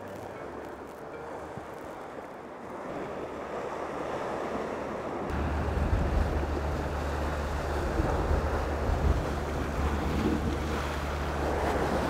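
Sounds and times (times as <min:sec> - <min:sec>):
sea swell surging against rocks: 0:01.5 - 0:12.0
wind buffeting microphone: 0:05.3 - 0:12.0.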